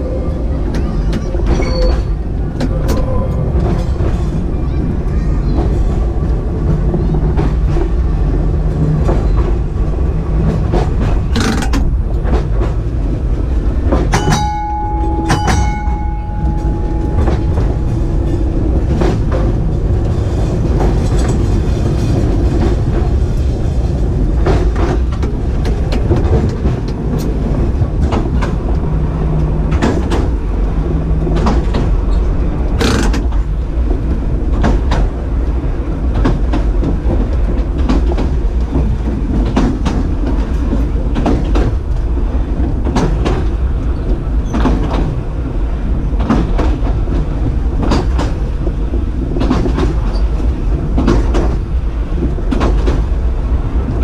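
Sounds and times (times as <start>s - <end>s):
tram rumbling along track: 0.0s - 54.0s
brief ringing tone: 14.2s - 18.3s.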